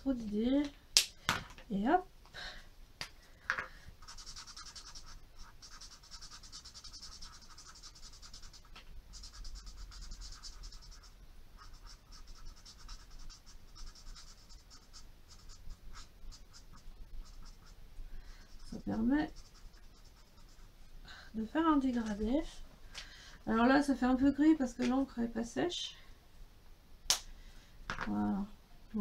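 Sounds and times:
marker scratching on card: 4.0 - 17.8, 18.4 - 20.7.

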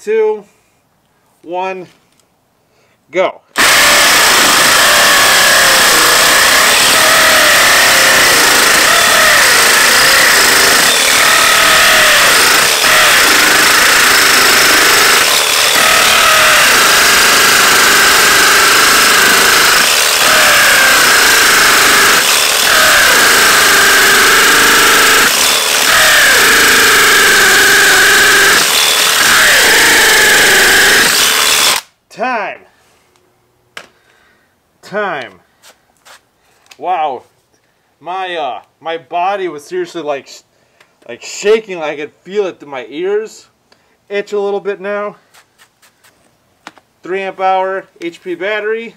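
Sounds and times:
hammer drill boring into concrete: 3.6 - 31.9.

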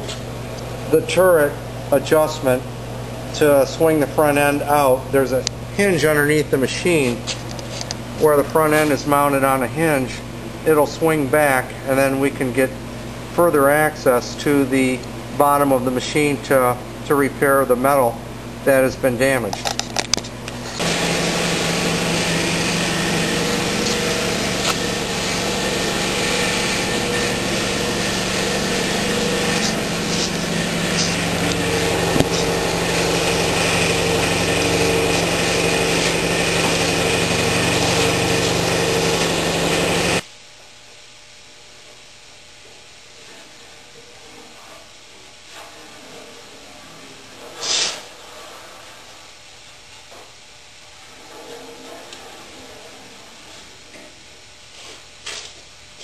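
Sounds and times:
faint workshop background: 0.0 - 56.0
small gasoline engine running: 20.8 - 40.2
short hiss: 47.6 - 48.0.

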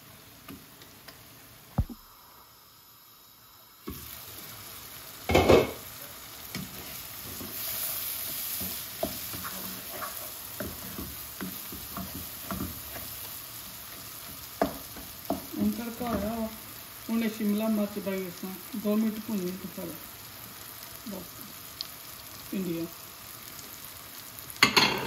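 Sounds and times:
onions and tomatoes sizzling in oil: 0.0 - 25.0
wooden spatula scraping a pan: 5.3 - 16.6.

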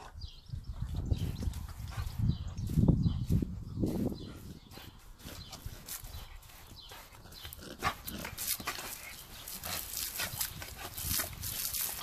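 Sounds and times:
garden hose spraying: 8.0 - 12.0.

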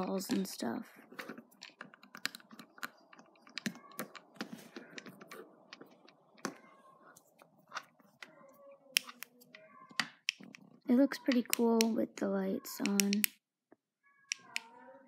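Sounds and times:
plastic pieces clicking: 1.2 - 6.6, 8.9 - 12.0, 12.8 - 13.4, 14.3 - 14.8.

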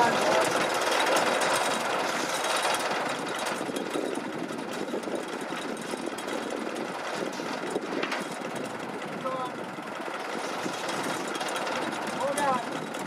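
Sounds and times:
excavator engine clattering: 0.0 - 13.0.

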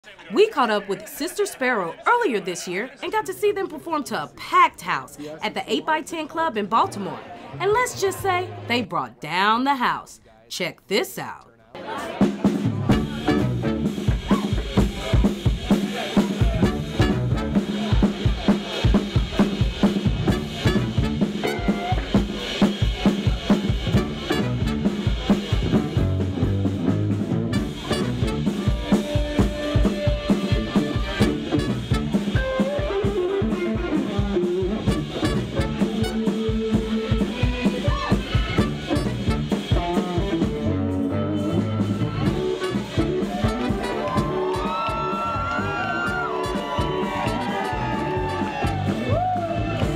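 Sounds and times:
bass guitar: 6.7 - 9.1, 12.2 - 49.9
drum kit beat: 12.0 - 49.9
horns: 12.0 - 49.9
electric guitar: 12.8 - 49.9.

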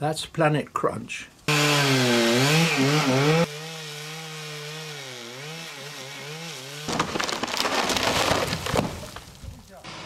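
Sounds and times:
chainsaw cutting tree trunk: 1.5 - 9.2.

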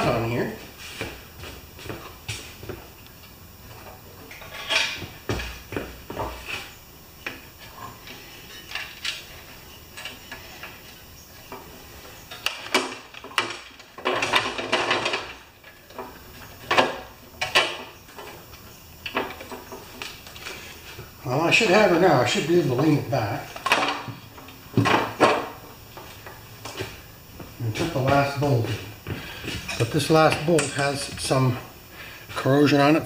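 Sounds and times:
metal parts clattering: 4.3 - 5.0, 12.3 - 15.5.

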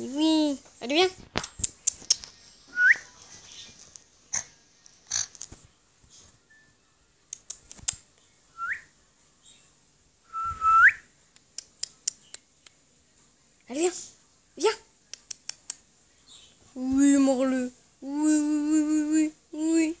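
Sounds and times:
person whistling: 8.6 - 8.9, 10.3 - 11.0.

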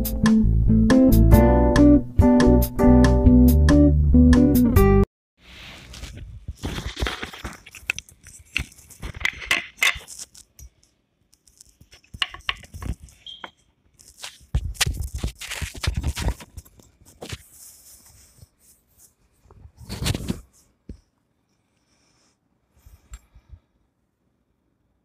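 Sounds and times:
objects rustling on wooden table: 5.6 - 18.8.

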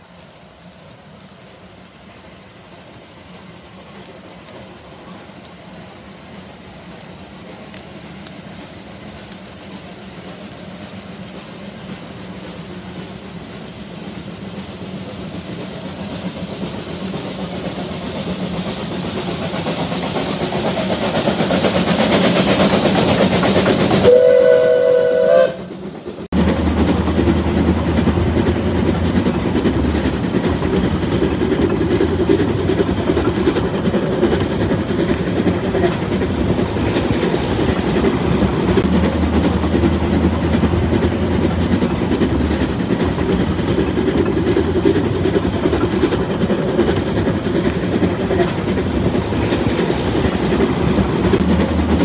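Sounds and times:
steam locomotive running: 0.0 - 52.0
steam whistle two-note chord: 24.0 - 25.7.

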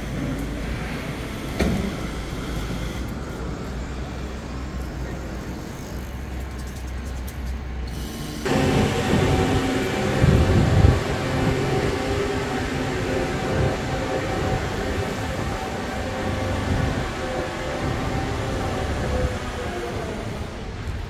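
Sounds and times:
street low rumble: 0.0 - 21.0
steady hum: 8.0 - 21.0.

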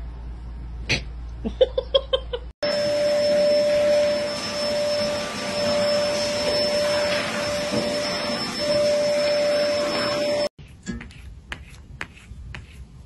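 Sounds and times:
vacuum cleaner motor whining: 2.6 - 10.5.

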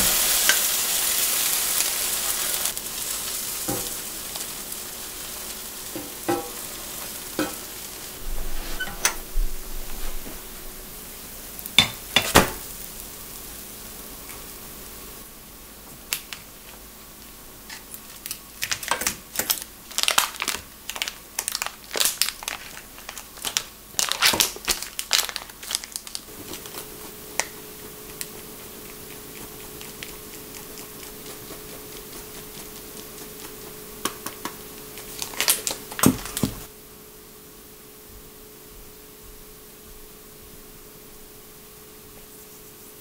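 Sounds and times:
faint steady hum: 0.0 - 43.0
plastic wrapper crinkling: 18.0 - 27.6, 34.3 - 36.7
cheese scraping on grater: 26.4 - 33.9.

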